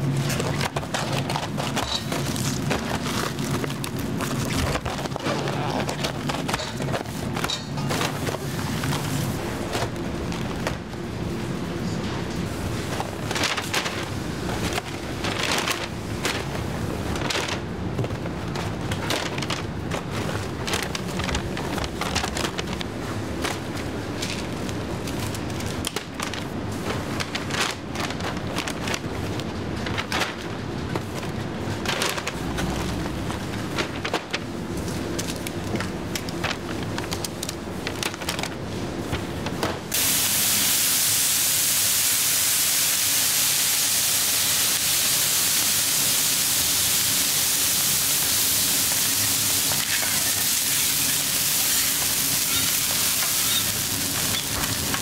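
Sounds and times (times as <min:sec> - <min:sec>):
paper bag rustling: 0:00.0 - 0:10.6, 0:46.0 - 0:55.0
steam hissing off hot griddle: 0:40.0 - 0:55.0.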